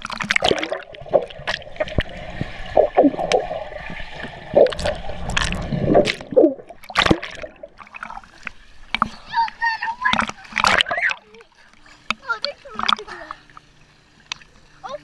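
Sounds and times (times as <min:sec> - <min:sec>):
water gurgling underwater: 0:00.0 - 0:11.4
water splash: 0:00.0 - 0:11.4.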